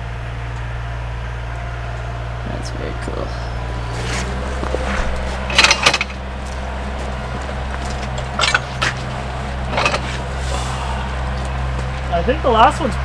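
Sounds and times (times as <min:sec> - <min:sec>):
sawmill engine idling: 0:00.0 - 0:13.0
boards knocking and clattering: 0:04.0 - 0:10.4.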